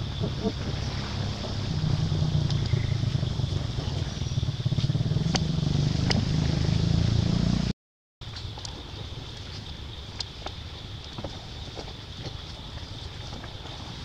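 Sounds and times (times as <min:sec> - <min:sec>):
steady low rumble: 0:00.0 - 0:07.2.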